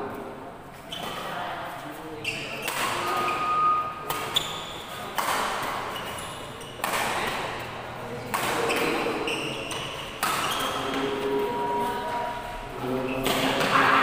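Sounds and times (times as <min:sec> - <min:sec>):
shoes squeaking on court: 0:00.8 - 0:01.4, 0:02.2 - 0:07.6, 0:08.3 - 0:12.4
rackets hitting a shuttlecock: 0:02.6 - 0:03.3, 0:04.0 - 0:04.4, 0:05.1 - 0:06.1, 0:06.7 - 0:07.6, 0:08.3 - 0:10.9.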